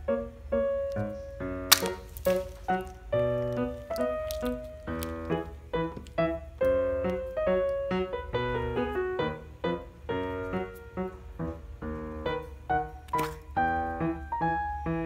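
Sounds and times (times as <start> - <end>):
keyboard melody: 0.0 - 15.0.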